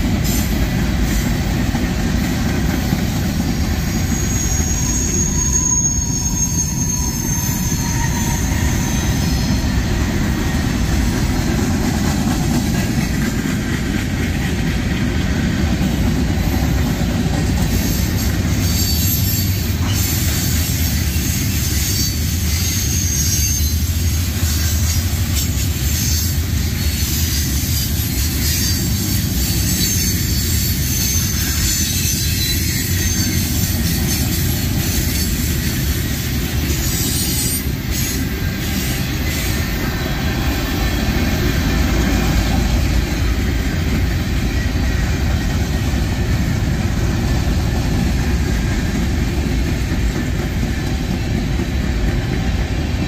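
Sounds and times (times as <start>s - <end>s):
steel wheels rumbling on rail: 0.0s - 53.0s
high-pitched wheel squeal: 3.5s - 9.9s, 17.8s - 23.9s, 25.8s - 35.7s.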